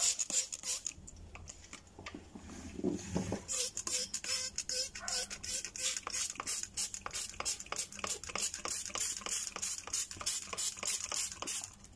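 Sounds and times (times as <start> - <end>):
spray bottle squirting: 0.0 - 0.9, 3.5 - 11.8.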